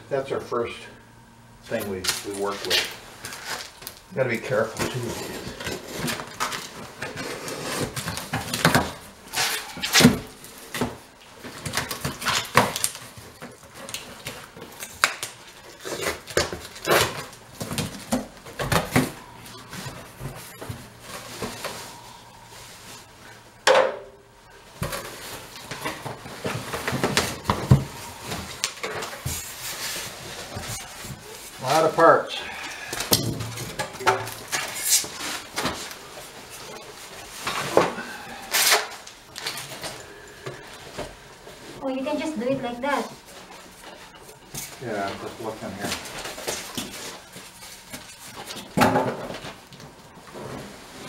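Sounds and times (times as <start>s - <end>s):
cardboard scrape or tear: 7.2s - 8.0s.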